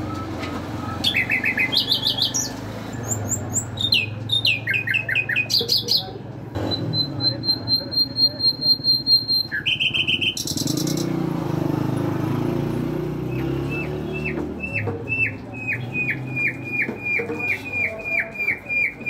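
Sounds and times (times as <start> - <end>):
nightingale singing: 0.0 - 11.5, 13.2 - 19.0.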